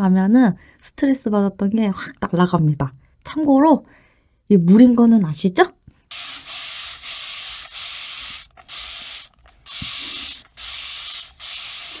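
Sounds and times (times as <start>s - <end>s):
spray bottle hissing bursts: 6.1s - 12.0s.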